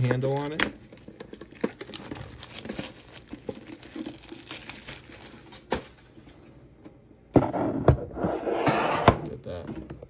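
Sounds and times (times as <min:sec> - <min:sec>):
plastic wrapping crinkling: 0:00.0 - 0:06.0.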